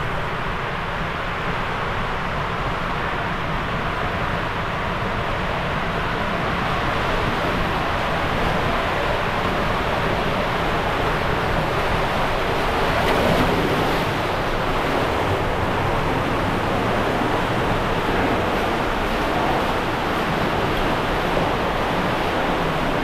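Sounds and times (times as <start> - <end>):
water rushing in slide tube: 5.8 - 23.0.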